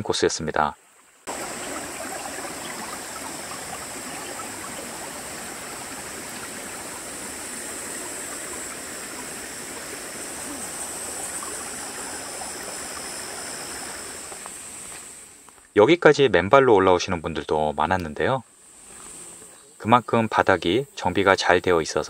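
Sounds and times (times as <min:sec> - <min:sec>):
thin high hiss: 0:01.1 - 0:16.0, 0:17.2 - 0:22.0
stream water rushing: 0:01.2 - 0:15.5.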